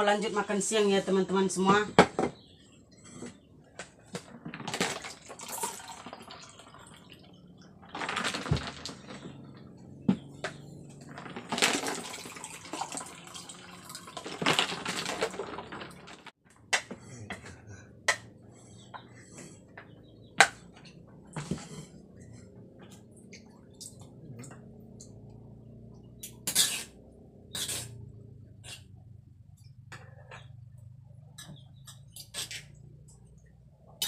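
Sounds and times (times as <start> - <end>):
water pouring into cups: 5.0 - 7.2, 11.5 - 16.2.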